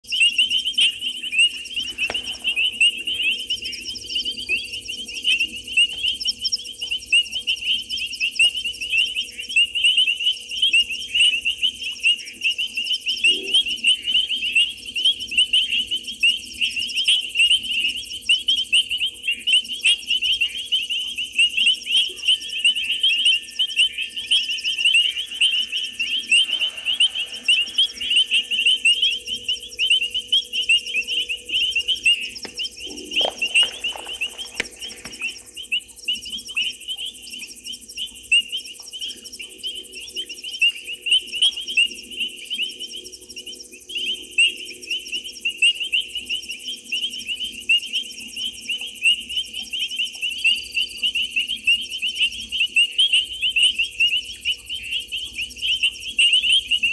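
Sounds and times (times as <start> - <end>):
frogs and insects chirping: 0.0 - 56.9
faint low hum: 0.1 - 44.6.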